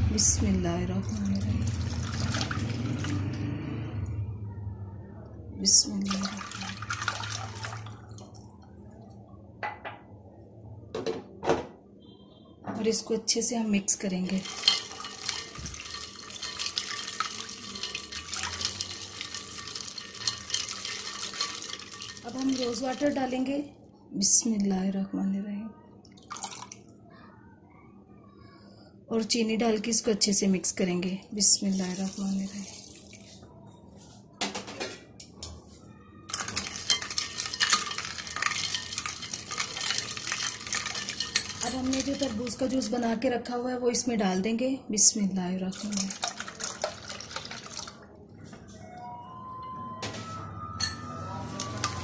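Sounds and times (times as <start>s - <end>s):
liquid sloshing in a bowl: 1.2s - 3.6s, 6.0s - 8.6s, 14.2s - 23.5s, 26.1s - 26.8s, 36.3s - 42.9s, 45.7s - 48.2s
spoon stirring milk and ice: 14.2s - 23.5s, 36.3s - 42.9s, 45.7s - 48.0s, 51.6s - 52.0s
ice cubes clicking: 36.3s - 42.5s.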